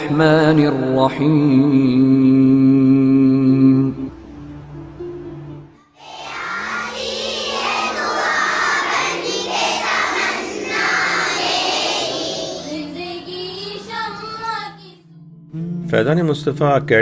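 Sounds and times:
girls chanting in unison: 0:06.0 - 0:12.9.

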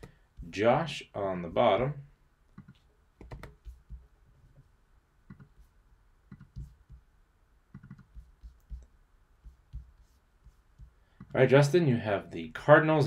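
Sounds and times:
keyboard and mouse clicks: 0:02.6 - 0:04.0, 0:05.3 - 0:05.6, 0:06.3 - 0:06.8, 0:07.7 - 0:08.9.

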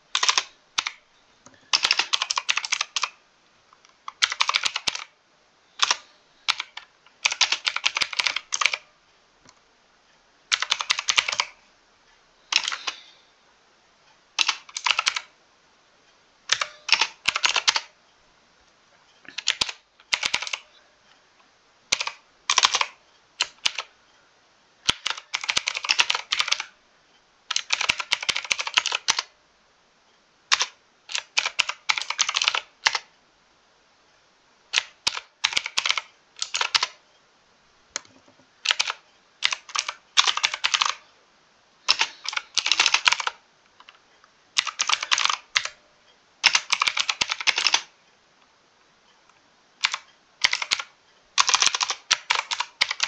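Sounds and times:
mechanical keyboard typing: 0:00.1 - 0:01.0, 0:01.7 - 0:03.2, 0:04.1 - 0:05.1, 0:05.8 - 0:08.9, 0:10.5 - 0:11.6, 0:12.5 - 0:13.0, 0:14.4 - 0:15.3, 0:16.5 - 0:18.0, 0:19.3 - 0:20.7, 0:21.9 - 0:23.9, 0:24.8 - 0:26.8, 0:27.5 - 0:29.3, 0:30.5 - 0:33.1, 0:34.7 - 0:37.0, 0:38.0 - 0:41.0, 0:41.9 - 0:44.0, 0:44.6 - 0:45.8, 0:46.4 - 0:47.9, 0:49.8 - 0:53.0.

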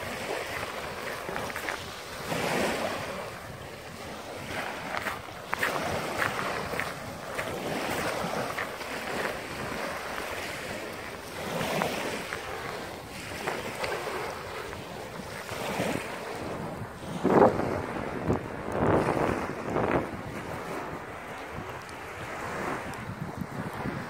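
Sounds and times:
waves washing up shingle beach: 0:00.0 - 0:24.0
wind buffeting microphone: 0:00.0 - 0:24.0.

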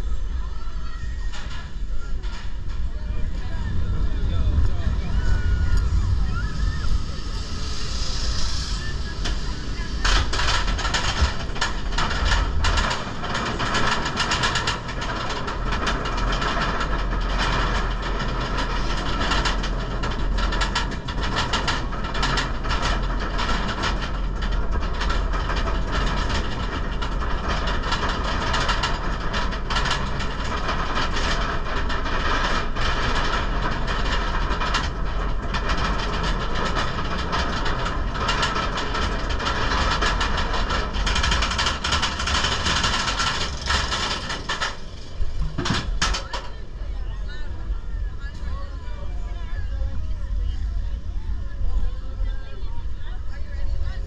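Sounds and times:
lift chain humming: 0:00.0 - 0:54.0
ratchet clicking clatter: 0:07.4 - 0:46.5.

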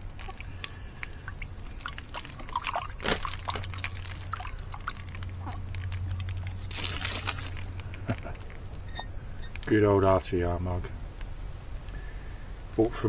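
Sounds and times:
water splashing from a mug: 0:00.0 - 0:07.7.

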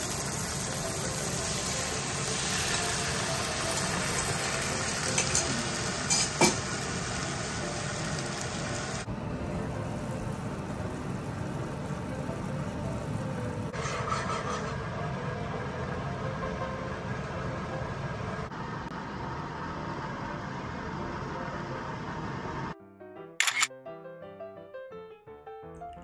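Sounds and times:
patties sizzling in frying pan: 0:00.0 - 0:17.6.

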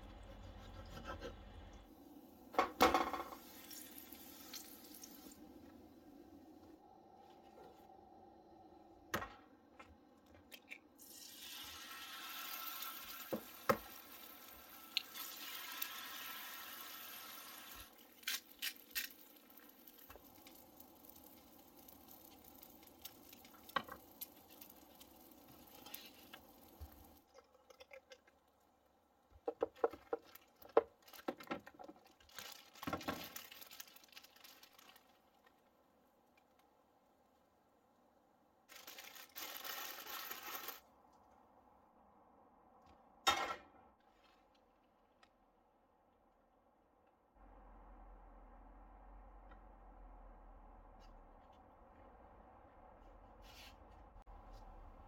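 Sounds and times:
plastic bag crinkling: 0:30.0 - 0:35.6, 0:38.7 - 0:40.9.

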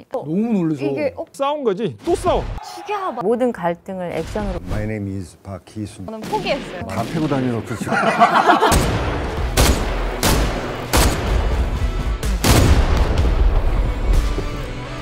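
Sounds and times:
person laughing: 0:07.7 - 0:08.8
gunshot sound effects: 0:08.7 - 0:11.6, 0:12.4 - 0:13.7.

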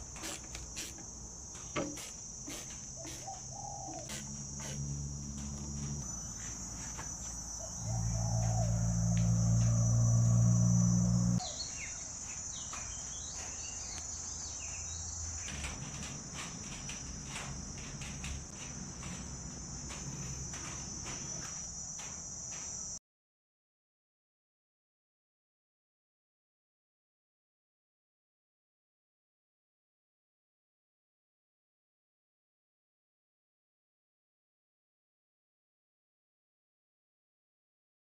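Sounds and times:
insects chirring: 0:00.0 - 0:23.0
low hum: 0:03.1 - 0:11.4.

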